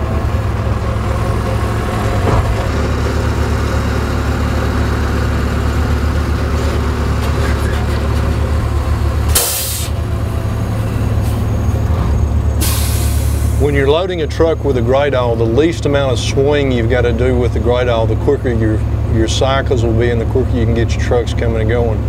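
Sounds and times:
heavy engines droning: 0.0s - 22.0s
short sharp air hiss: 9.4s - 10.0s, 12.6s - 13.6s.

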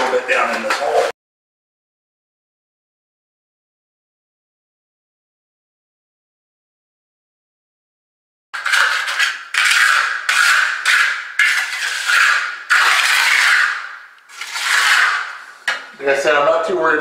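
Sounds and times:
trowel scraping wet concrete: 8.6s - 15.9s.

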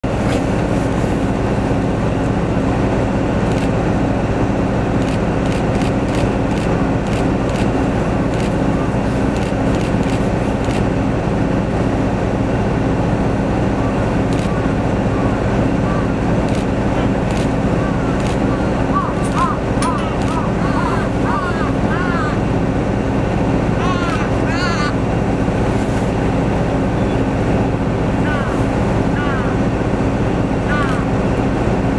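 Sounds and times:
low engine drone: 0.0s - 31.9s
sharp clicks: 5.0s - 7.7s, 9.3s - 10.8s, 19.3s - 20.4s.

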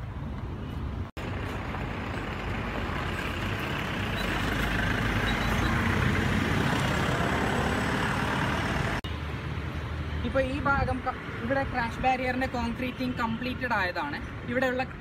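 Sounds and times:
road traffic rumble: 0.0s - 15.0s
heavy vehicle passing: 1.2s - 9.0s.

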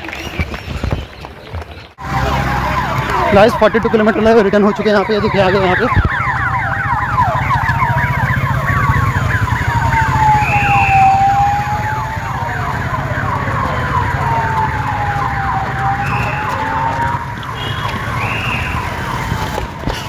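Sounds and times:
engine rumble: 1.9s - 20.0s
siren wailing: 2.0s - 19.8s
siren yelping: 2.0s - 19.8s.

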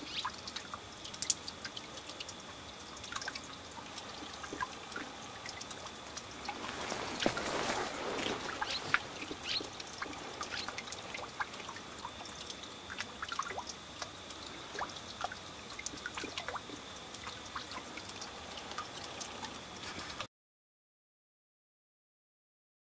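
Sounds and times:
faint high whine: 0.0s - 20.3s
soft background hiss: 0.0s - 20.3s
bird chirps and calls: 8.5s - 9.8s.

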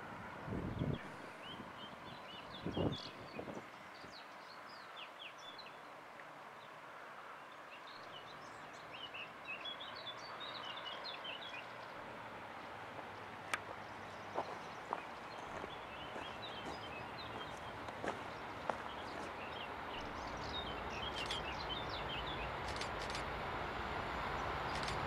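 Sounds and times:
distant freight train rush: 11.6s - 25.0s
small birds chirping: 13.6s - 23.2s
sharp clicks: 21.1s - 21.5s, 22.6s - 23.3s, 24.7s - 25.0s.

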